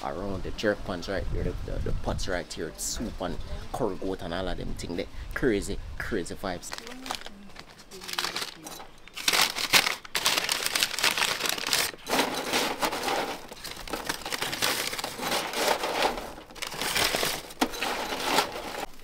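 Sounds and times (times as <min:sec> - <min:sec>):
fries rustling in metal tray: 0:06.7 - 0:19.0.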